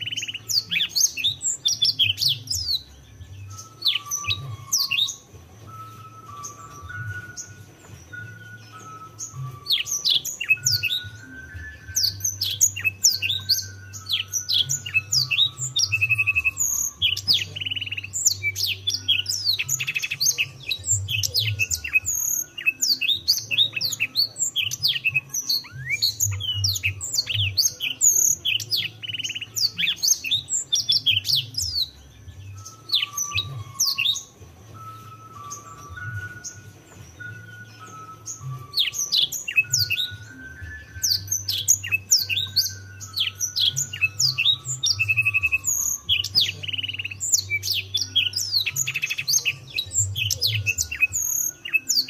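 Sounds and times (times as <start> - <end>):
canary singing: 0.0 - 52.0.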